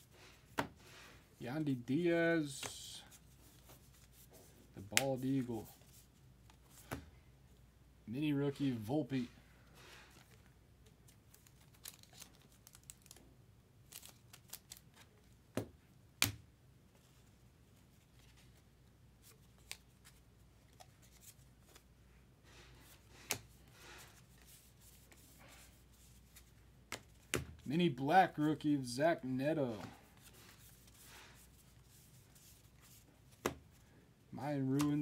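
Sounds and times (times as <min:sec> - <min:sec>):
cards rustling: 0:00.1 - 0:07.1, 0:08.5 - 0:13.2, 0:13.8 - 0:15.4, 0:17.0 - 0:33.9, 0:34.5 - 0:35.0.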